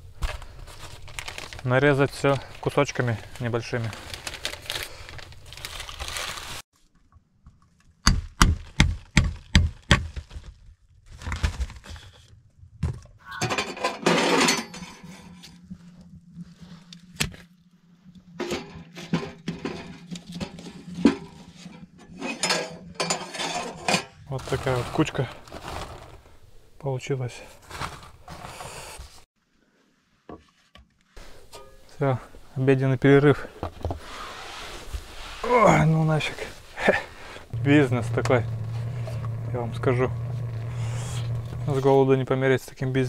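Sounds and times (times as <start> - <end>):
steady low hum: 14.4 - 24.4, 36.9 - 43.0.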